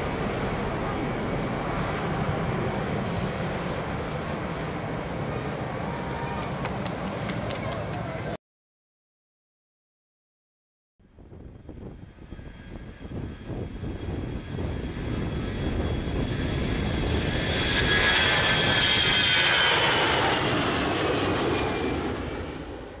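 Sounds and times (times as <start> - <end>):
high engine whine: 0.0 - 8.4
jet engines roaring at takeoff: 0.0 - 8.4, 11.2 - 23.0.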